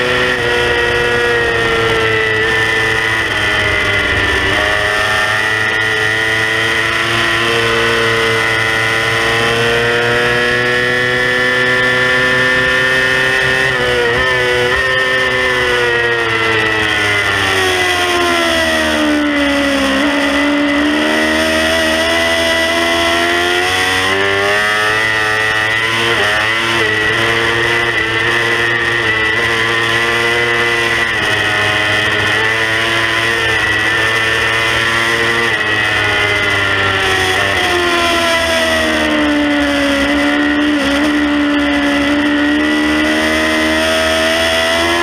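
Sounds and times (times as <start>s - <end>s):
motorcycle engine at high revs: 0.0s - 45.0s
high whine: 0.3s - 9.1s
wind rushing on microphone: 2.0s - 6.5s.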